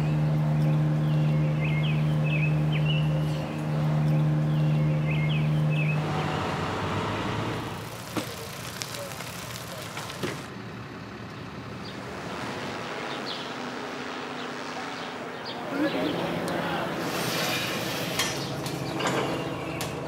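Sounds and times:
birds chirping: 0.0 - 6.2, 7.9 - 20.0
outdoor ambience: 0.0 - 20.0
loud buzzing hum: 11.6 - 20.0.

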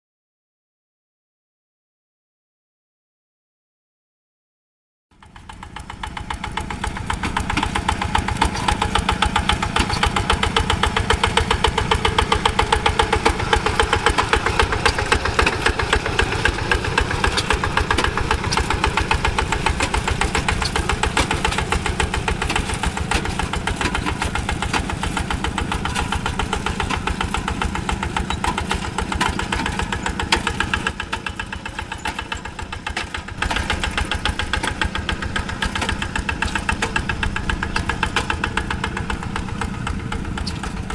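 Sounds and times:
diesel engine chugging: 5.1 - 40.9.

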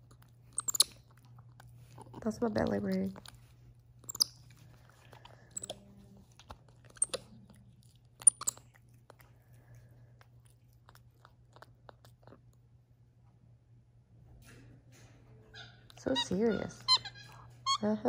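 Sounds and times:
monkey crunching biscuit: 0.0 - 12.6
faint low hum: 0.0 - 18.0.

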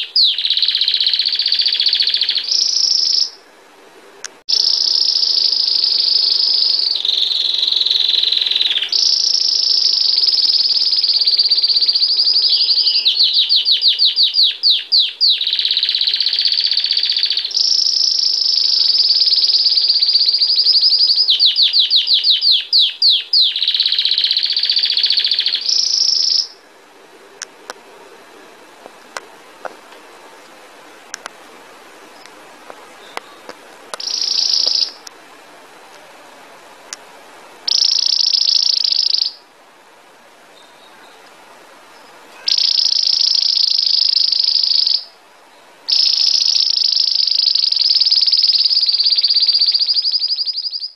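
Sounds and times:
canary singing: 0.0 - 3.4, 4.2 - 26.7, 29.1 - 35.2, 37.6 - 39.5, 41.9 - 50.9
faint clicks: 28.8 - 31.4.

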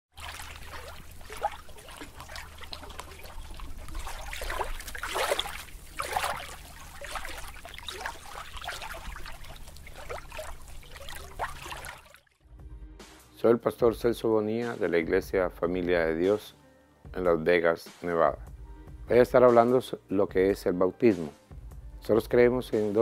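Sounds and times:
bubbling chirps: 0.1 - 12.2
water splashing and gurgling: 0.1 - 12.4.

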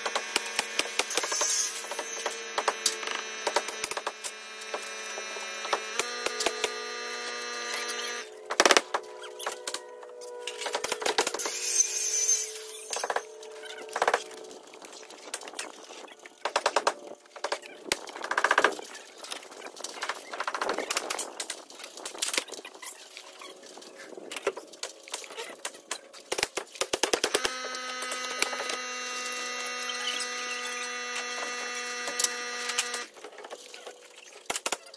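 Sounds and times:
steady machine hum: 0.0 - 8.4.

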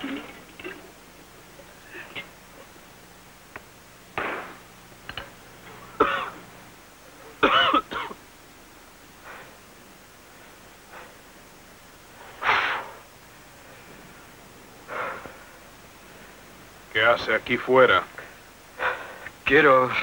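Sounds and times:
man coughing: 1.9 - 2.4, 6.0 - 6.4, 7.4 - 8.2.

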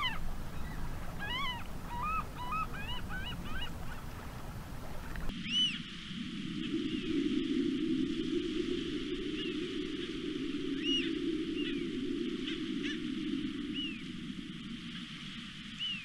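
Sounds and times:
bird whistled calls: 0.0 - 3.7, 5.4 - 5.8, 10.8 - 11.8, 13.7 - 14.0, 15.8 - 16.0
low background rumble: 0.0 - 5.6.

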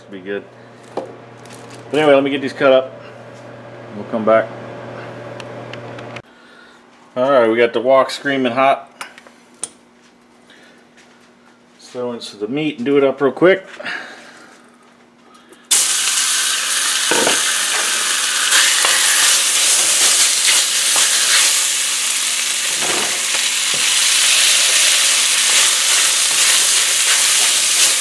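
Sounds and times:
meat sizzling in a wok: 15.7 - 28.0.

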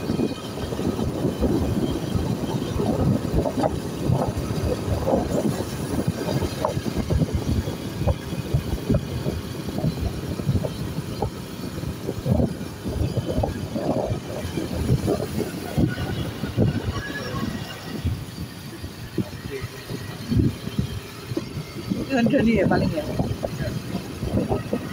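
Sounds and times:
engine and road rumble: 0.0 - 24.9
wind buffeting microphone: 0.0 - 24.9.

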